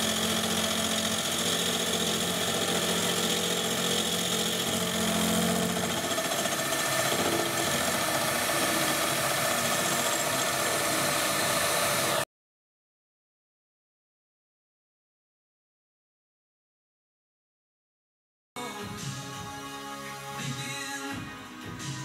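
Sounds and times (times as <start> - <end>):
milling machine cutting metal: 0.0 - 12.2.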